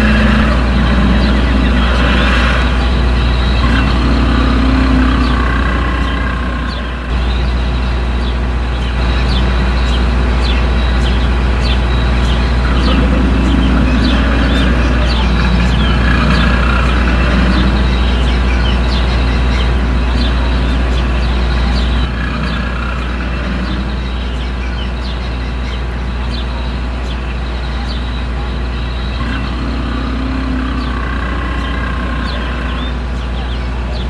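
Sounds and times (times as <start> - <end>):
dinosaur growling roars: 0.0 - 7.1, 12.5 - 18.9, 19.7 - 24.4, 29.1 - 33.0
deep continuous rumble: 0.0 - 34.0.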